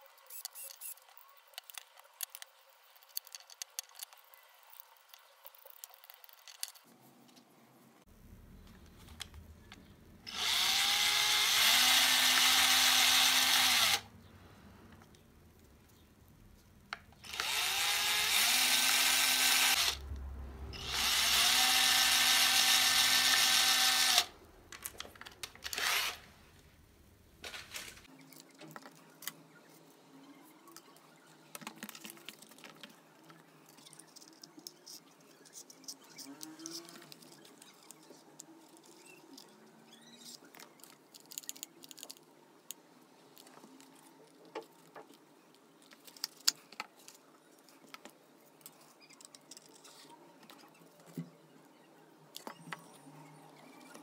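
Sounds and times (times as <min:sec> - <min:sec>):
electric drill boring wood: 0:10.3 - 0:14.0, 0:17.2 - 0:20.0, 0:20.8 - 0:24.3, 0:25.7 - 0:26.2.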